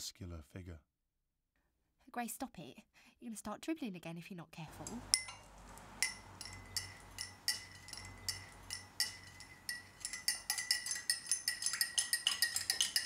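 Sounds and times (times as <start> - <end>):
teaspoon clinking in china cup: 4.8 - 13.0.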